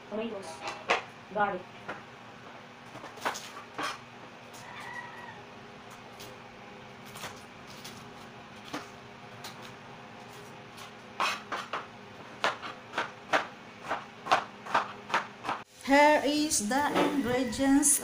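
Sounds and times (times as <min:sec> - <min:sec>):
knife chopping on cutting board: 0:10.8 - 0:15.6.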